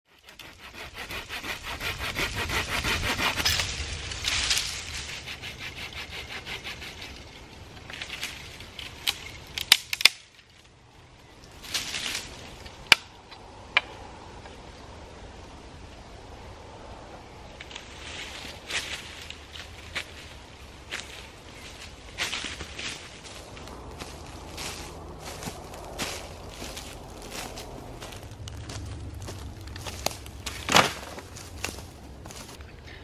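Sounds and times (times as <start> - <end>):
hand saw cutting wood: 0.1 - 3.8, 4.9 - 7.4
wood cracking: 6.6 - 10.6, 26.0 - 32.6.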